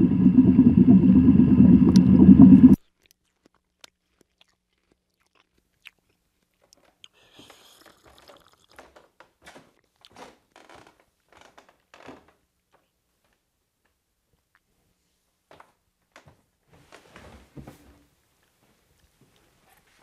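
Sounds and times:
person chewing and swallowing: 0:01.9 - 0:09.1
drinking from a glass: 0:07.0 - 0:08.8.

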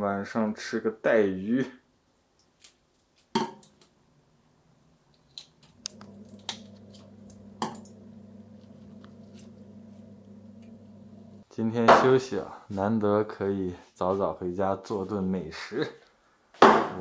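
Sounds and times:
steady low hum: 0:05.7 - 0:11.4.

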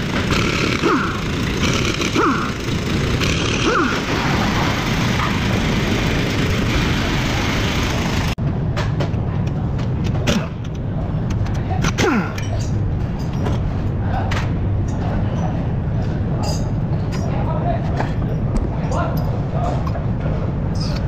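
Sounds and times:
impact wrench whining: 0:00.0 - 0:08.4
steady noise: 0:00.0 - 0:11.3
low workshop hum: 0:00.0 - 0:21.0.

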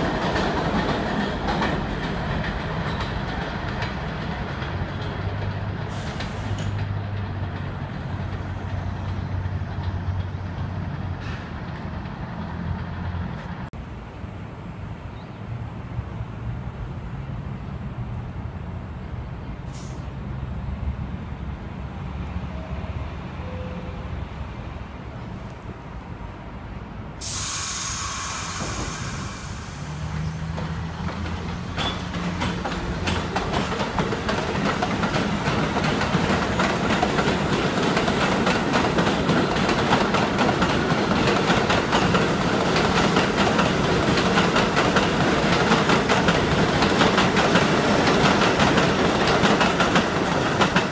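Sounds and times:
train wheels clattering on track: 0:00.0 - 0:13.7, 0:27.2 - 0:50.9
train humming at standstill: 0:00.0 - 0:50.9
loud hiss of air: 0:05.9 - 0:06.8, 0:19.6 - 0:20.2, 0:27.2 - 0:30.4.

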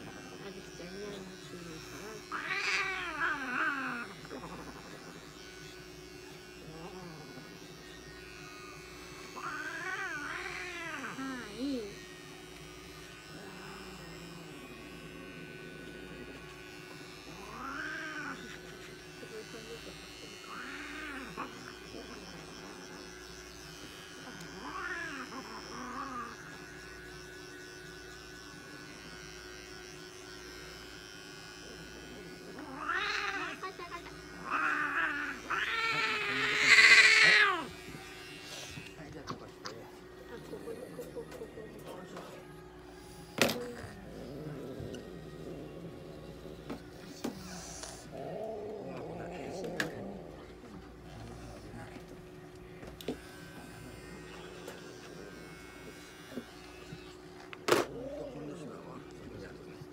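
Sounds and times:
electric hair clipper buzzing: 0:00.0 - 0:59.9
cat yowling: 0:09.4 - 0:11.4, 0:32.6 - 0:33.7, 0:34.4 - 0:37.7.

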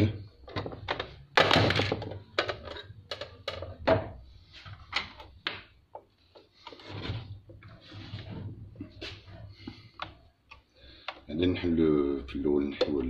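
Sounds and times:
plastic knocks and clicks: 0:00.4 - 0:04.2, 0:12.7 - 0:13.0.

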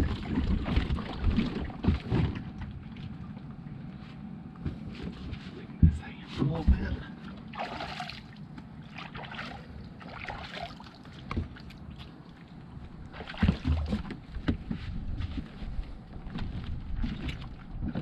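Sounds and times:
wind rumbling on microphone: 0:00.0 - 0:07.4, 0:11.2 - 0:18.0
water sloshing around boat: 0:00.0 - 0:18.0.

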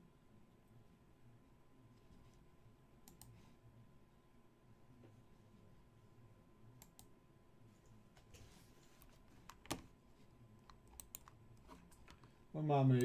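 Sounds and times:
keyboard and mouse clicks: 0:09.4 - 0:09.9, 0:10.6 - 0:12.3.

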